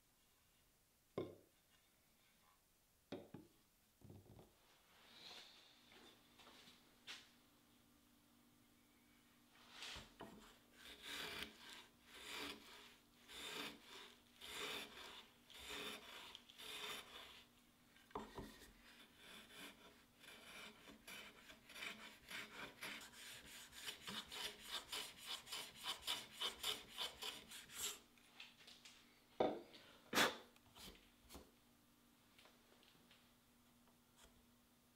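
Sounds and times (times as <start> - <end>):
router plane scraping wood: 9.8 - 17.5, 18.2 - 28.0.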